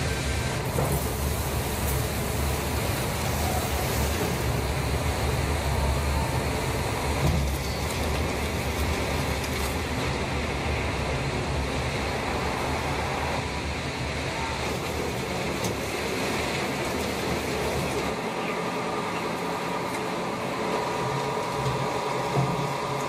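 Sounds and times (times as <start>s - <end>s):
vehicle engines rumbling: 0.0s - 23.0s.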